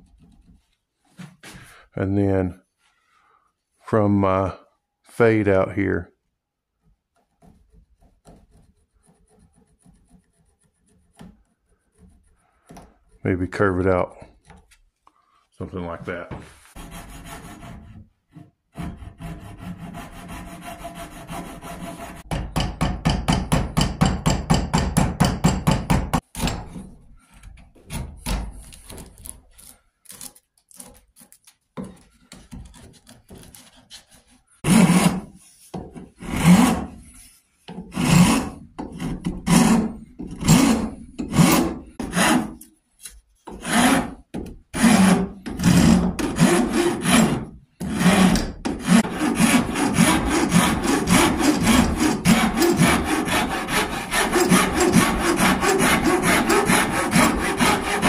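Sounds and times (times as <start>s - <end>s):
chisel scraping wood: 7.1s - 13.4s, 16.4s - 22.4s, 26.2s - 58.0s
file drawn across wood: 16.4s - 22.2s, 27.2s - 44.2s, 44.8s - 58.0s
hacksaw sawing wood: 16.7s - 58.0s.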